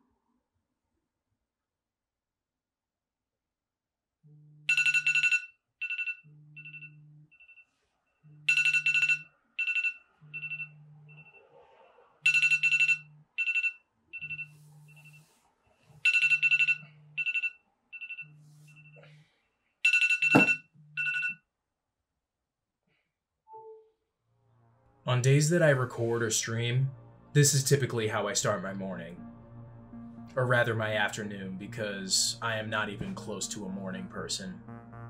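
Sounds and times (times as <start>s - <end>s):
phone vibrating buzz: 4.2s - 7.6s, 8.2s - 11.4s, 16.1s - 19.1s, 19.9s - 21.3s
phone alarm ringtone: 4.6s - 11.5s, 12.2s - 15.3s, 16.0s - 19.2s, 19.8s - 21.4s.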